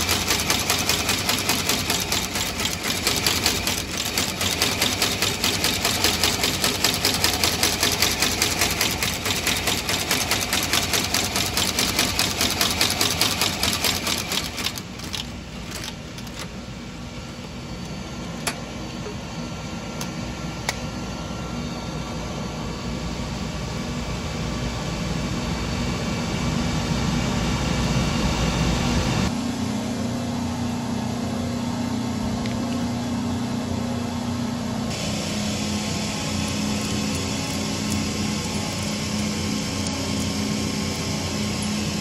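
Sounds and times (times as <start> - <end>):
stitching machine running: 0.0 - 16.6, 34.9 - 42.0.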